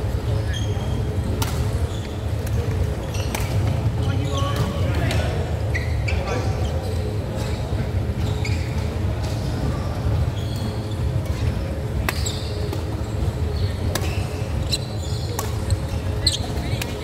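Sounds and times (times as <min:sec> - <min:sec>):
shoe squeaks on court floor: 0:00.3 - 0:01.0, 0:03.0 - 0:04.8, 0:05.6 - 0:07.6, 0:08.2 - 0:09.0, 0:10.3 - 0:11.4, 0:12.1 - 0:17.0
racket hitting shuttlecock: 0:15.4 - 0:15.7.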